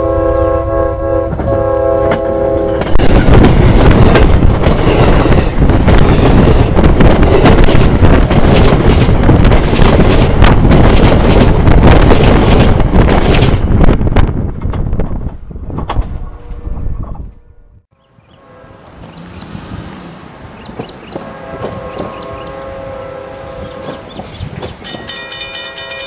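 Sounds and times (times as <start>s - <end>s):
train horn blowing: 0.0s - 3.4s, 17.4s - 20.1s, 21.0s - 26.0s
train wheels rumbling and clattering: 1.2s - 17.4s, 18.8s - 26.0s.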